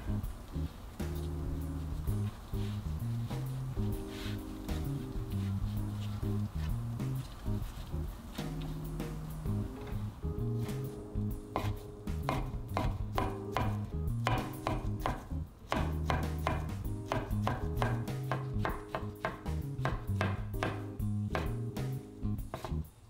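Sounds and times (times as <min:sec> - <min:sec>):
knife knocking on wooden board: 0:11.6 - 0:20.8.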